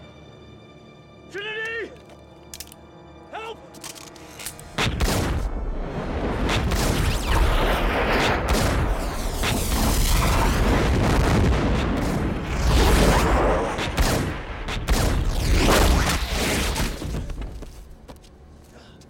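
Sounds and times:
film score: 0.0 - 19.0
slowed-down gunshots booming: 4.8 - 17.0
sharp pistol shots: 13.7 - 16.4.

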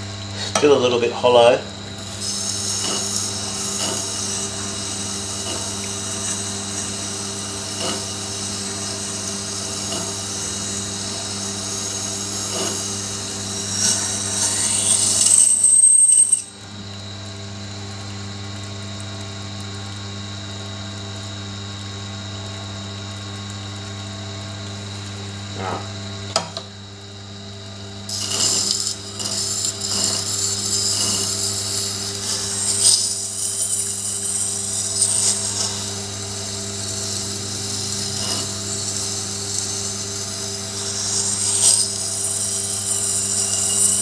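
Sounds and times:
grinder motor hum: 0.0 - 44.0
knife blade scraping on whetstone: 2.0 - 7.0, 7.7 - 8.2, 9.5 - 16.6, 28.1 - 44.0.

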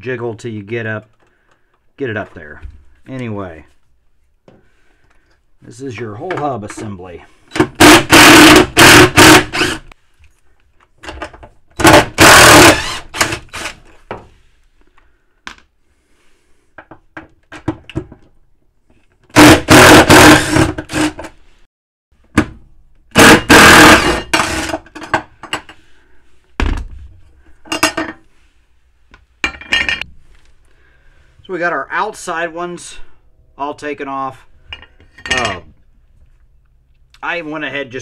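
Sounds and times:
cordless drill whining: 7.8 - 9.9, 11.8 - 13.8, 19.4 - 21.2, 23.2 - 24.8.

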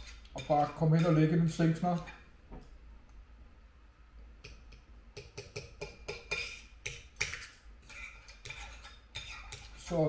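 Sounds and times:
cutlery scraping a plate: 0.0 - 1.3, 4.6 - 10.0.

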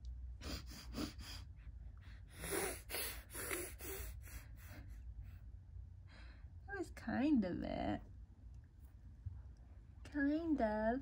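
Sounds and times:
baby sniffing: 0.4 - 5.0.

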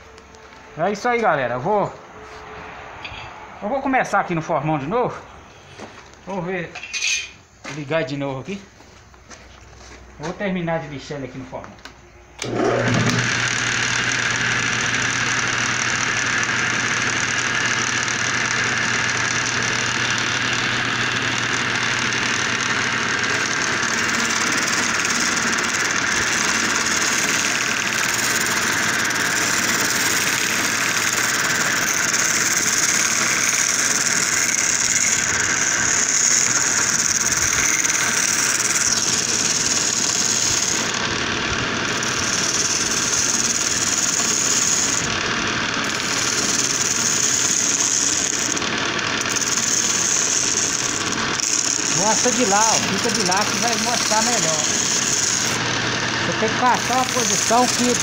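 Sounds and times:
chisel cutting spinning wood: 12.4 - 58.0
lathe motor hum: 12.4 - 58.0.

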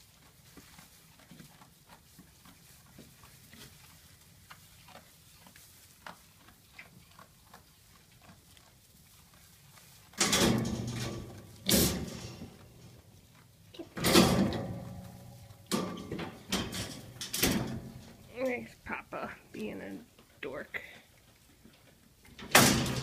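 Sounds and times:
goats rustling in hay: 0.0 - 10.2.

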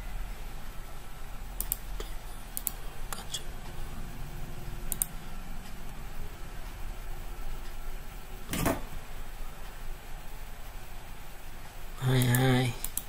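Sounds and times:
faint mains hum: 0.0 - 13.0
computer mouse clicking: 1.6 - 3.4, 4.9 - 5.2, 12.1 - 13.0.

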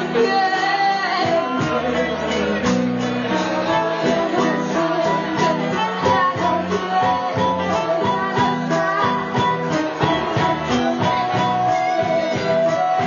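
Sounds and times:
live rock band playing: 0.0 - 13.0
woman singing: 0.0 - 13.0.

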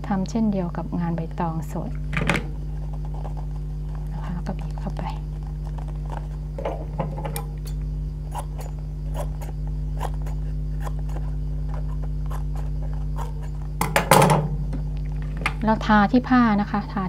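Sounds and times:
steady low hum: 0.0 - 17.0
scissors snipping fabric: 7.3 - 13.6.

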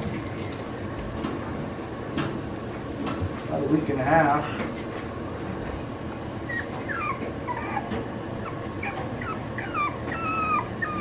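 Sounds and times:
puppy whining: 6.3 - 11.0.

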